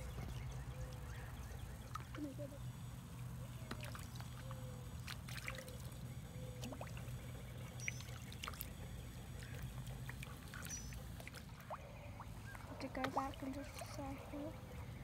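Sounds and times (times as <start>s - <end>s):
pond water trickling and lapping: 0.0s - 15.0s
steady low hum: 0.0s - 15.0s
light water splashes and clicks: 1.8s - 2.2s, 3.6s - 6.0s, 7.8s - 8.8s, 9.4s - 14.1s.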